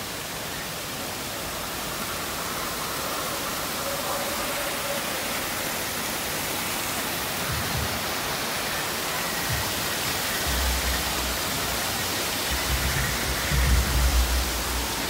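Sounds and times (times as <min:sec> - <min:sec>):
rushing falling water: 0:00.0 - 0:15.0
low rumbles: 0:10.4 - 0:15.0.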